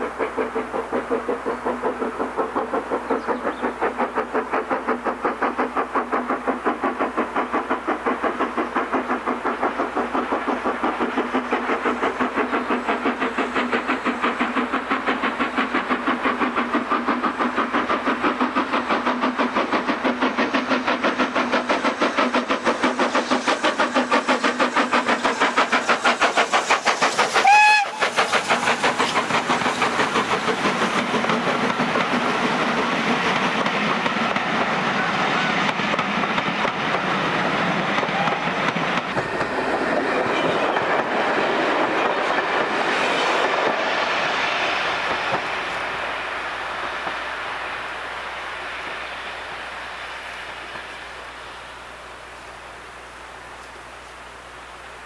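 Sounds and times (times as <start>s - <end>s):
coaches clickety-clack: 0.0s - 45.9s
steam locomotive exhaust chuffing: 0.0s - 55.0s
train whistle blast: 27.4s - 28.2s.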